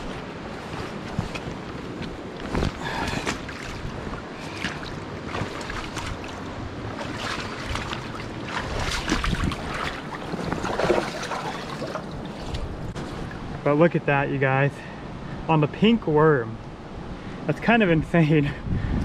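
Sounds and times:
river water rushing: 0.0s - 13.5s
wind buffeting microphone: 0.0s - 13.6s, 17.9s - 19.0s
water splashes: 1.2s - 13.4s.

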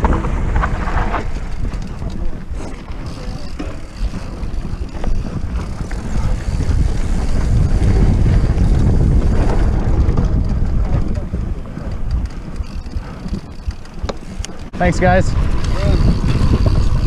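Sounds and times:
bike tyres rumbling on dirt: 0.0s - 17.0s
wind buffeting microphone: 0.0s - 17.0s.

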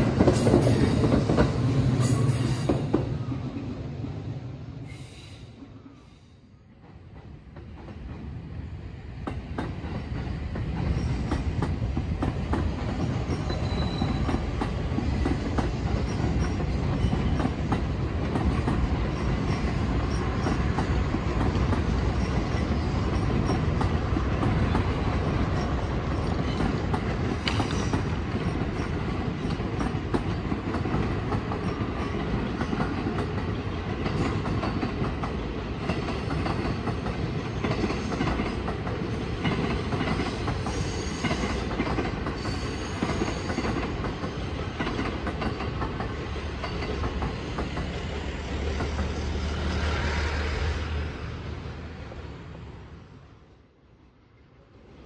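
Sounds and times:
train wheels clattering over rails: 0.0s - 3.7s, 6.8s - 50.5s
wheel squeal: 13.4s - 14.4s.

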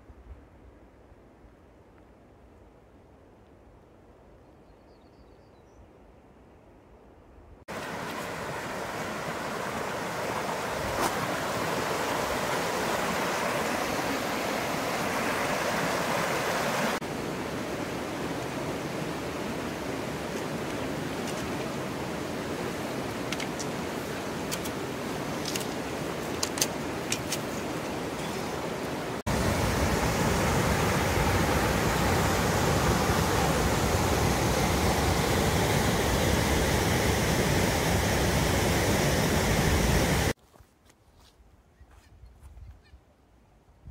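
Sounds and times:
water rushing over rocks: 7.7s - 40.4s.

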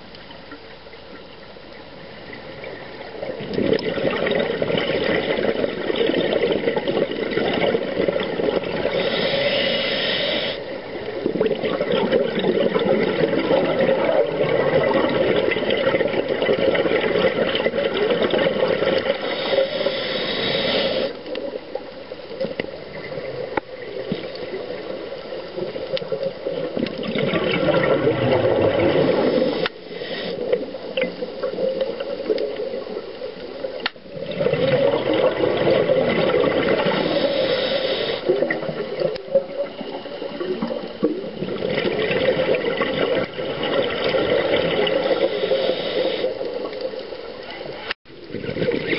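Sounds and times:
regulator hiss: 8.8s - 10.8s, 19.1s - 21.3s, 29.1s - 30.6s, 36.8s - 38.4s, 45.0s - 46.6s
bubbling exhalations: 11.2s - 21.1s, 26.5s - 32.8s, 34.0s - 46.4s.

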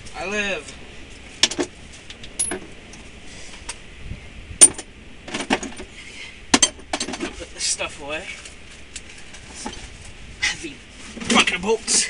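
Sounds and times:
metal clinks and knocks: 1.4s - 2.7s.

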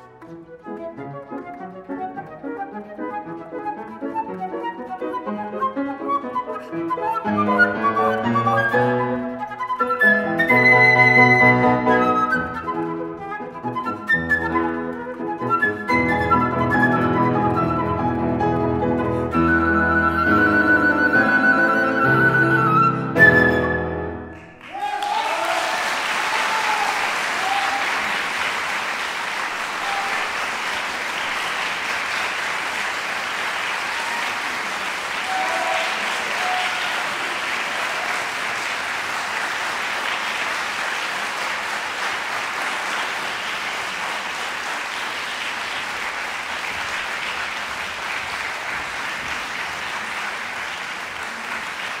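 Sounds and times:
audience applauding: 4.0s - 52.0s.

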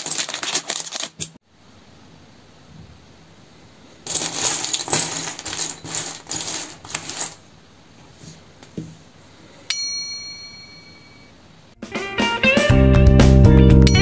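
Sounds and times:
plastic bricks clattering: 0.0s - 1.4s, 4.0s - 7.4s
ringing tone: 9.7s - 11.4s.

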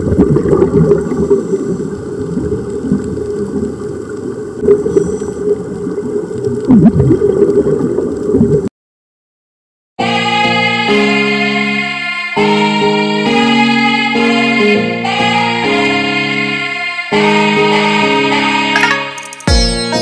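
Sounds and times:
underwater bubbling and gurgling: 0.0s - 8.7s
background music: 10.0s - 20.0s.

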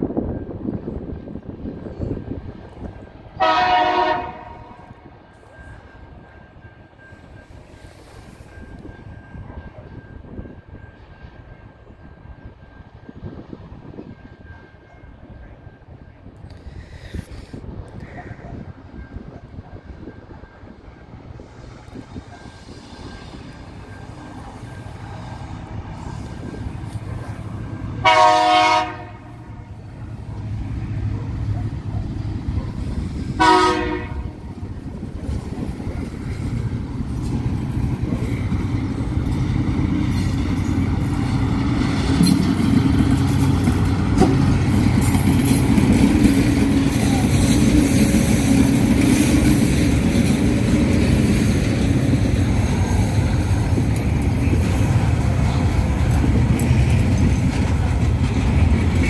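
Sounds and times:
locomotive horn: 3.4s - 5.1s, 27.8s - 30.0s, 33.3s - 34.5s
diesel engines rumbling: 16.2s - 59.0s
wagon wheels clattering on rail: 34.0s - 59.0s.

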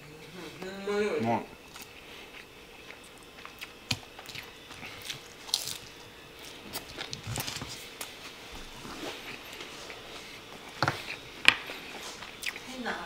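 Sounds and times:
crunchy food being chewed: 1.6s - 12.7s.

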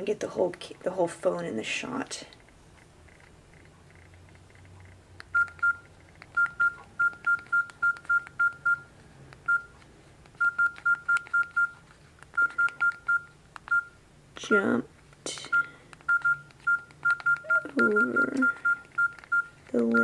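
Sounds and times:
phone keypad beeps: 5.3s - 9.8s, 10.4s - 11.8s, 12.4s - 14.0s, 15.5s - 20.0s.

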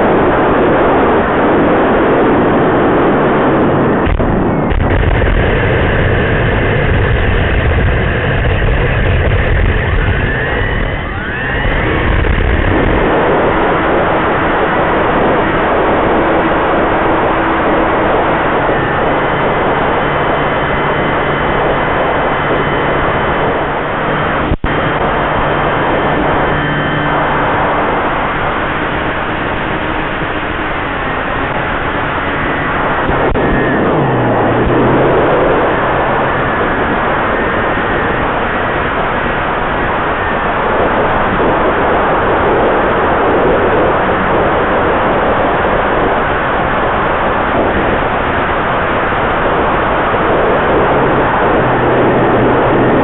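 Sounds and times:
wind noise and hiss: 0.0s - 53.0s
model plane motor and propeller: 4.0s - 53.0s.

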